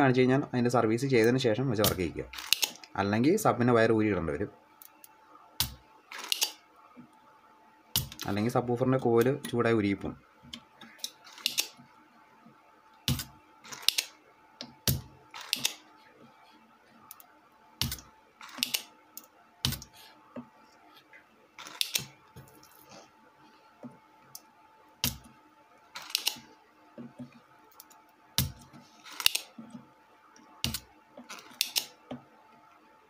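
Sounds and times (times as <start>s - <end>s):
desoldering pump clicks and snaps: 31.6s - 31.9s.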